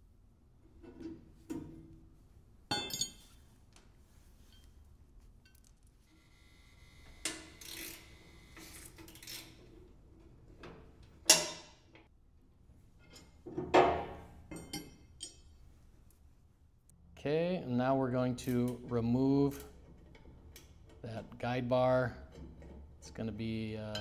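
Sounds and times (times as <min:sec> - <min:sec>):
metal bolts and wrenches clanking: 0:02.7 - 0:03.4, 0:10.5 - 0:12.1, 0:22.1 - 0:24.0.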